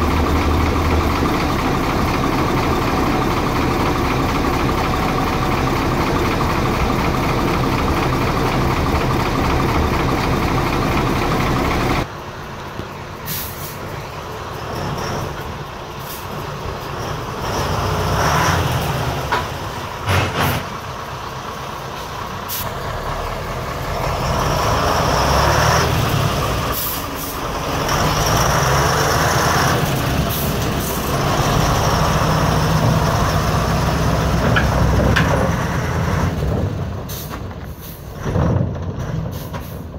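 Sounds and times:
truck engine revving: 0.0s - 12.2s, 12.8s - 39.9s
diesel truck engine running: 0.0s - 39.9s
air brakes hissing: 13.2s - 14.0s, 16.0s - 16.5s, 21.9s - 22.8s, 26.7s - 27.5s, 30.2s - 31.1s, 37.0s - 38.2s, 39.3s - 39.9s.

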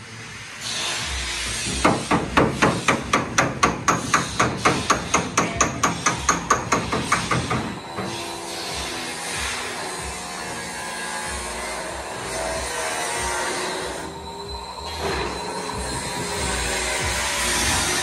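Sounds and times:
hammer tapping sheet metal: 1.8s - 7.8s.

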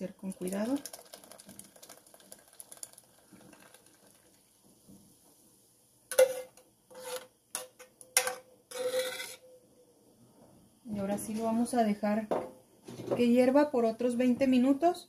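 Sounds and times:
metal ladle scraping saucepan: 6.1s - 7.3s, 8.7s - 9.4s.

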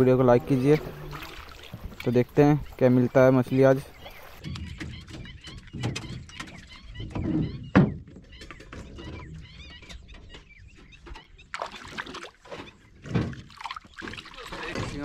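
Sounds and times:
fish splashing at surface: 0.8s - 2.1s.

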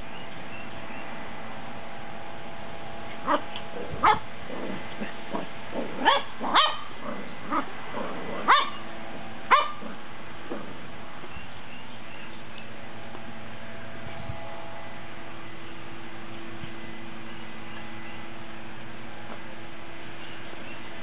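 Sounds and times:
puppy yipping and barking: 4.0s - 4.2s, 6.0s - 6.9s, 8.5s - 8.8s, 9.5s - 9.8s.

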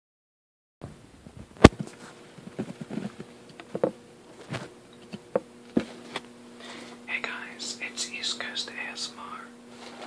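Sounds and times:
rustles and light knocks: 1.3s - 6.2s.

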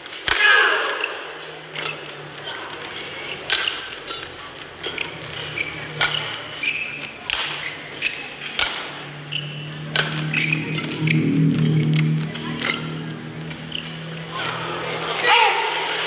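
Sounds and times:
rackets hitting shuttlecock: 3.1s - 10.6s
shoes squeaking on court: 4.9s - 8.4s, 9.3s - 10.6s.

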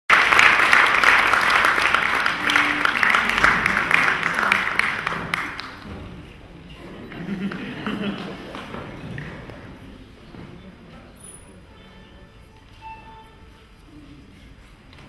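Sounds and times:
audience applauding: 0.1s - 6.0s, 7.1s - 9.7s.

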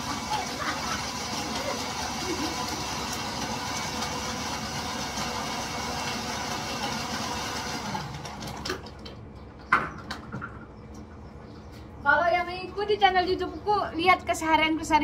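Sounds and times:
machine running: 0.0s - 8.7s.

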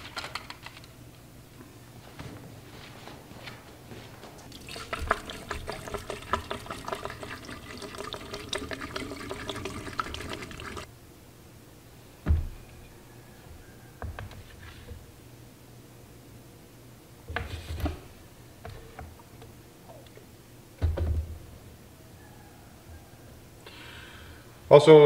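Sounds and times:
liquid glugging through a funnel: 4.5s - 10.9s.

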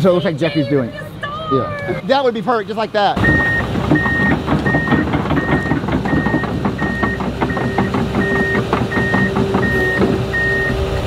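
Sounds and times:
excavator engine running: 0.1s - 11.0s
warning alarm beeping: 3.2s - 11.0s.

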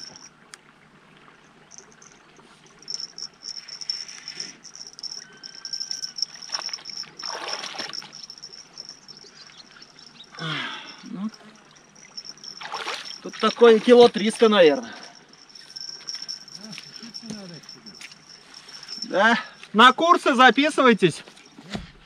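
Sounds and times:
fish splashing in water: 5.3s - 9.2s, 11.4s - 13.9s.

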